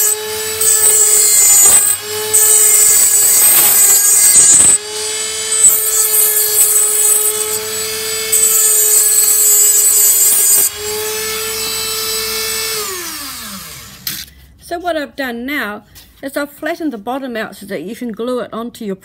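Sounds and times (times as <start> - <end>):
rotary tool motor whine: 0.0 - 14.3.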